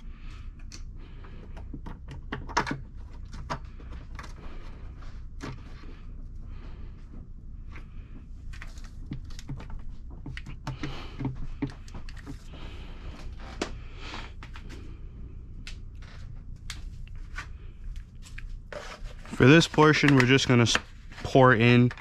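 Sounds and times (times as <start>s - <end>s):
low steady hum: 0.0s - 22.0s
clicks and taps: 9.1s - 12.5s.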